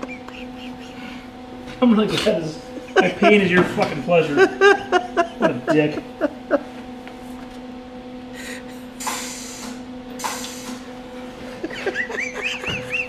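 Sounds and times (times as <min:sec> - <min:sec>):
steady low hum: 0:00.0 - 0:13.0
welder hissing bursts: 0:08.4 - 0:10.9.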